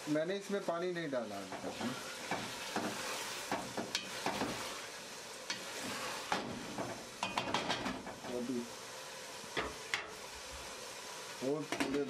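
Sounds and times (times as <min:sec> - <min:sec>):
minced meat sizzling in oil: 0:00.0 - 0:12.0
wooden spoon scraping pot: 0:01.5 - 0:04.9.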